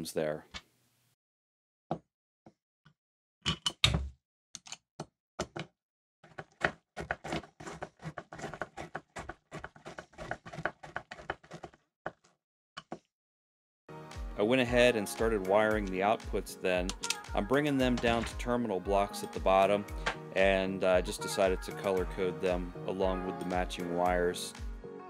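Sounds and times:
screwdriver clicking: 16.9 - 17.2.

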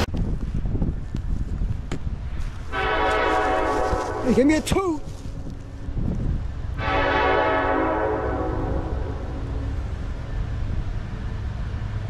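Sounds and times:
steady low rumble: 0.0 - 12.0
distant locomotive air horn: 2.7 - 4.4, 6.8 - 9.8.

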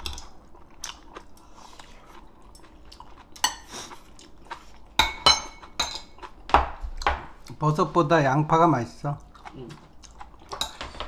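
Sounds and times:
chopsticks and bowls clinking: 2.4 - 4.0, 4.9 - 6.3, 10.5 - 11.0.

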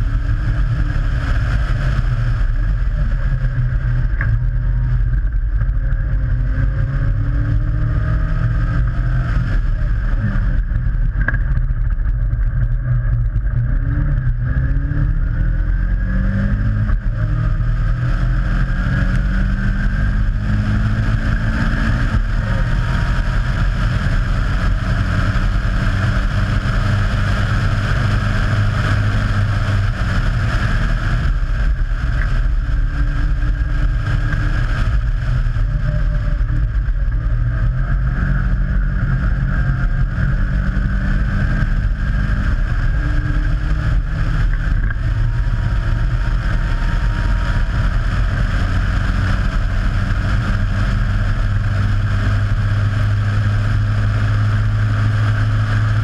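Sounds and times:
car engine revving through gears: 0.0 - 56.0.

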